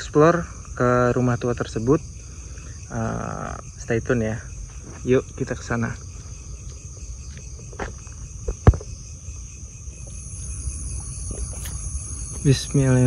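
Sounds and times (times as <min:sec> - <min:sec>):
crickets chirping: 0:00.0 - 0:13.0.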